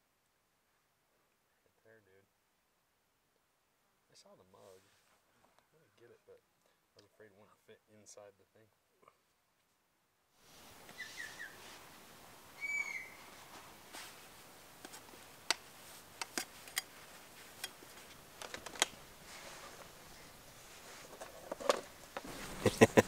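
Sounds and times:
bird whistled note: 10.9 - 11.6, 12.6 - 13.2.

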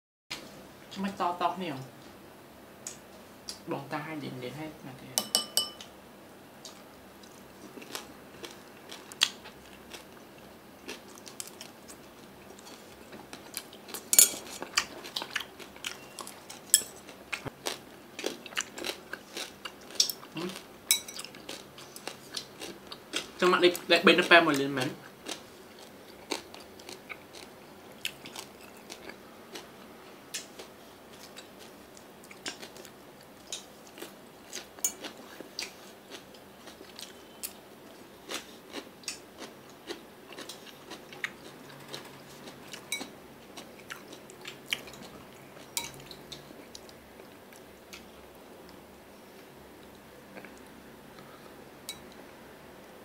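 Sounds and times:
crunchy chewing: 6.6 - 23.4, 25.1 - 48.1.

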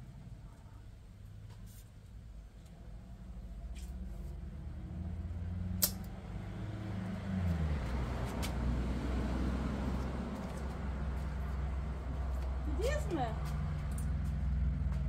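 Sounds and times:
engine humming: 2.2 - 15.0
sharp click: 5.8 - 6.1.

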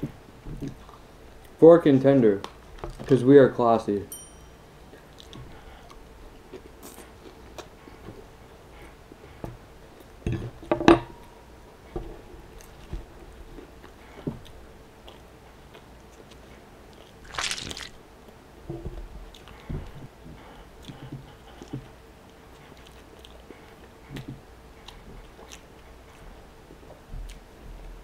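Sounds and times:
person chewing: 17.0 - 18.0
crackling tear of sandwich: 17.2 - 18.0.

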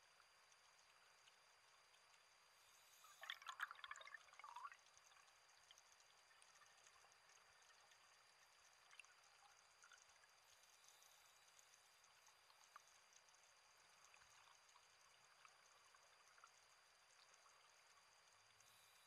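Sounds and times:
faint steady hiss: 0.0 - 19.0
underwater bubbles gurgling: 2.8 - 17.8.

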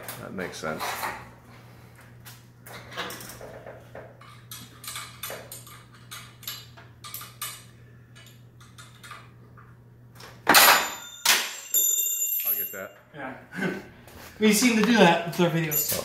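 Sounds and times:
wrench clanging on floor: 10.5 - 12.9, 15.6 - 16.0.

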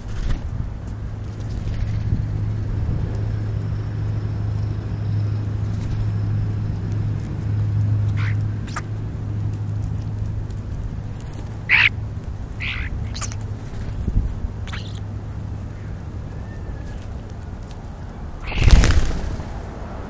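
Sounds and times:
steady low hum: 0.0 - 20.0
starlings giving harsh calls: 8.0 - 9.0, 11.1 - 17.0, 18.4 - 19.5.

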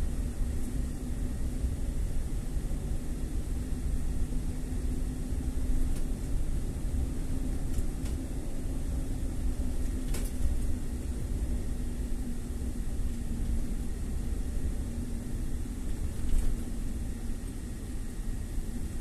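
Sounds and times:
car engine and road rumble: 0.0 - 19.0
faint steady hum: 0.0 - 19.0.

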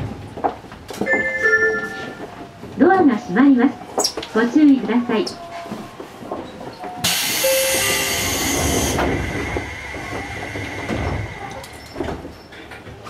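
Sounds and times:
steady high tone: 1.0 - 2.4.

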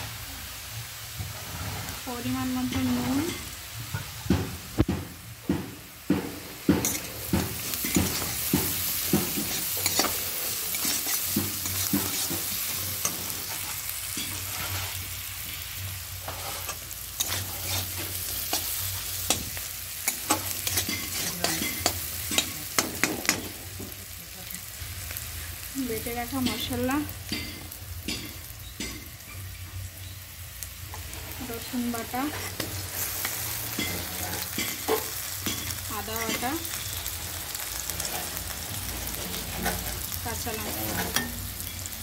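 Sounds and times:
onions sizzling in hot oil: 0.0 - 42.0
spatula scraping and knocking pan: 2.6 - 24.0, 30.9 - 42.0.

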